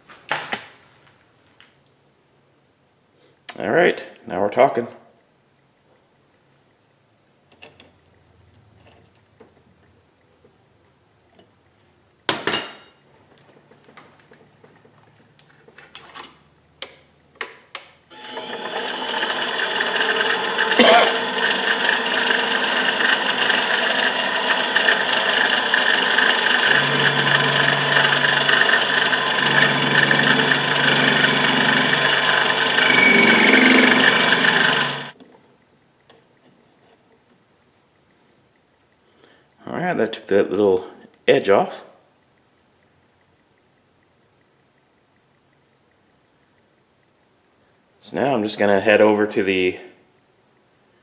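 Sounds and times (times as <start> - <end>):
lathe cutting tool scraping metal: 18.2 - 35.2.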